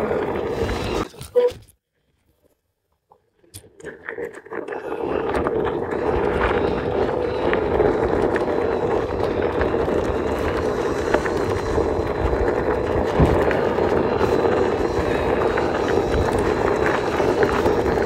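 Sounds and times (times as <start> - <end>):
drone propellers buzzing: 5.1 - 18.0.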